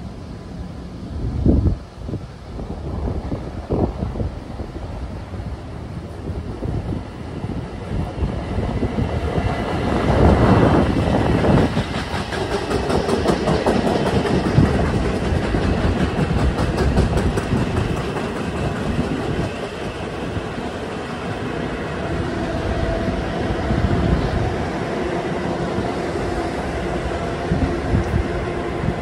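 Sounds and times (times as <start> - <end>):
train wheels clicking over rail joints: 9.2 - 21.4.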